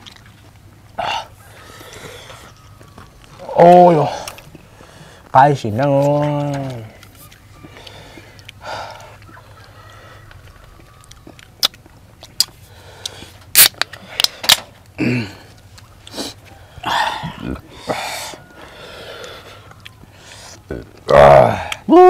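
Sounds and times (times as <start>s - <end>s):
breathy mouth sounds: 6.8s - 10.6s
beer can opening clicks: 13.5s - 14.6s
person grunting: 15.0s - 15.5s, 16.8s - 18.2s, 20.7s - 22.0s.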